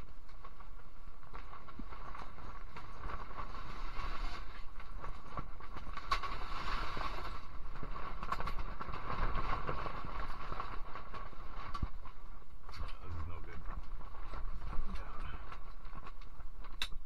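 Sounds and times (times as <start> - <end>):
wind buffeting a shelter: 0.0 - 17.0.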